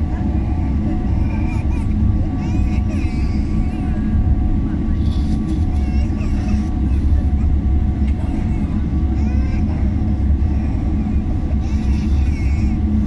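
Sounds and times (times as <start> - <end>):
faint voices: 0.0 - 13.0
jet engines low rumble: 0.0 - 13.0.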